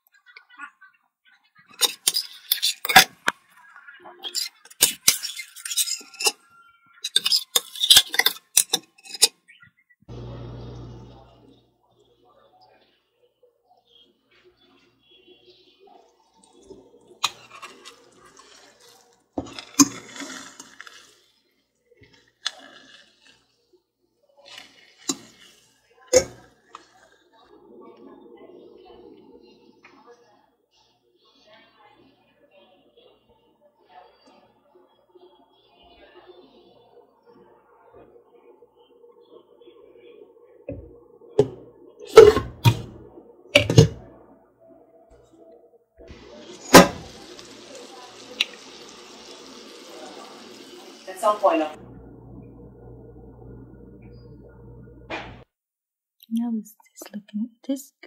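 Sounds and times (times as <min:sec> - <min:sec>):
spoon stirring eggs in a pan: 0:01.6 - 0:09.6, 0:15.5 - 0:23.6, 0:24.4 - 0:27.2, 0:46.1 - 0:51.2.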